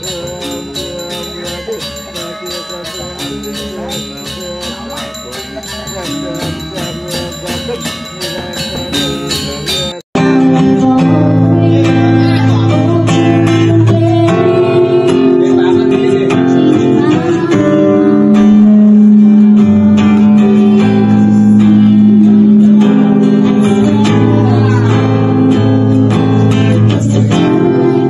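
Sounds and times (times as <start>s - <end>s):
acoustic guitar strummed: 0.0s - 28.0s
woman singing: 10.2s - 28.0s.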